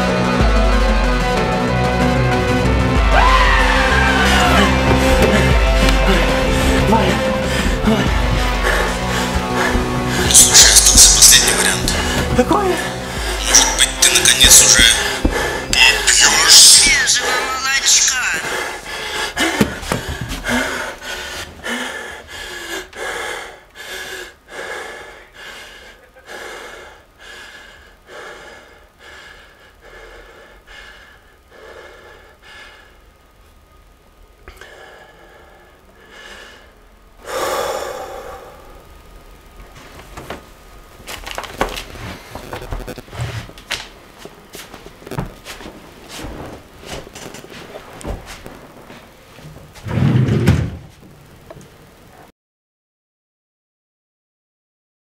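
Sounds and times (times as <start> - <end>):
man breathing heavily: 3.9 - 16.1, 18.4 - 33.2, 34.5 - 39.4.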